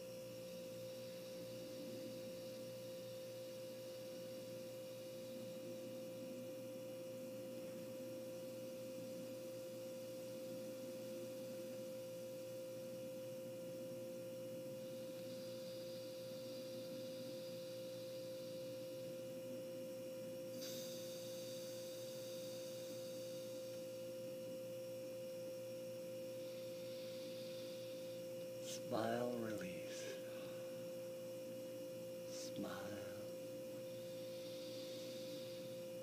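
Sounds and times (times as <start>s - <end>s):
faint high whine: 0.0s - 36.0s
faint hiss: 20.5s - 24.2s, 25.7s - 36.0s.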